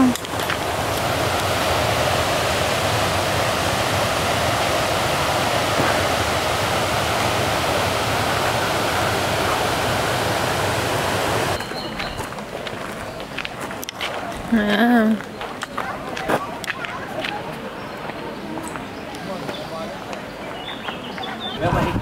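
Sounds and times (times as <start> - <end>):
water rushing over rocks: 0.0 - 11.7.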